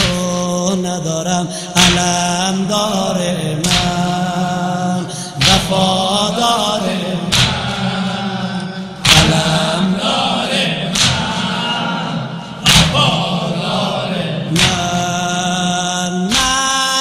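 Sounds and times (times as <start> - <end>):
men chanting in chorus: 0.0 - 17.0
crowd beating chests: 5.2 - 16.8.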